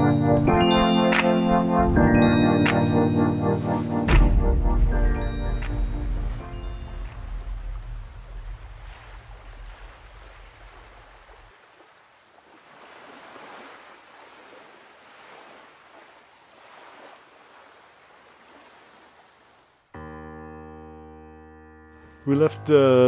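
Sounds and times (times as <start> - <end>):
ocean waves washing: 0.0 - 20.0
low bass tone: 4.1 - 9.8.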